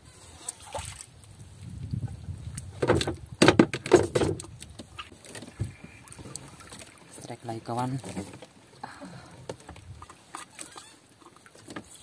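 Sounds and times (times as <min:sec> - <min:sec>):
knocks and clatters in wooden boat: 0:02.5 - 0:12.0.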